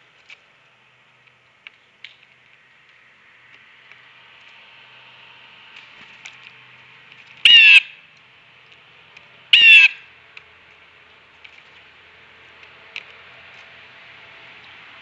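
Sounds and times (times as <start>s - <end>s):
blue jay harsh calls: 7.4s - 8.0s, 9.5s - 10.1s.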